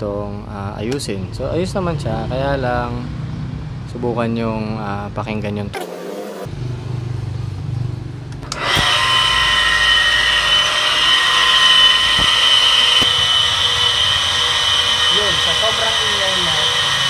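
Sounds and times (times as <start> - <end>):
pump switch click: 8.4 - 9.2
water pump high-pitched whine: 8.4 - 17.0.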